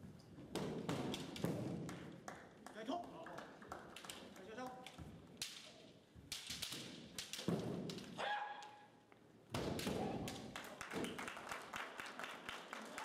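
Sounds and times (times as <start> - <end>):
bamboo swords clacking: 0.4 - 1.8, 4.8 - 8.9, 9.5 - 10.5.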